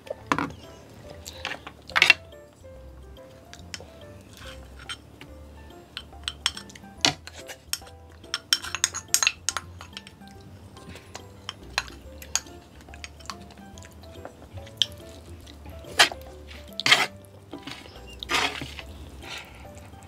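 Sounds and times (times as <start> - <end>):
chopsticks clinking: 3.2 - 19.9
chopsticks scraping ceramic bowl: 3.6 - 5.0, 6.2 - 10.1, 14.2 - 19.7.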